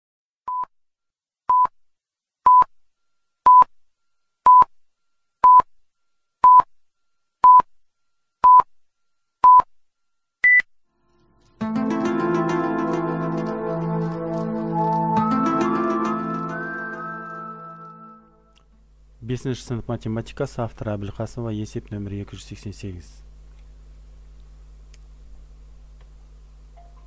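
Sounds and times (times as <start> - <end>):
music: 10.9 - 18.7.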